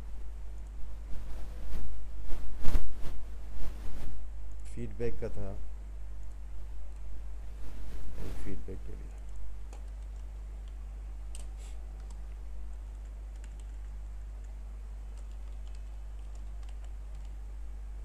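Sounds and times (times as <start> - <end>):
steady low hum: 0.0 - 18.0
keyboard typing: 9.0 - 17.4.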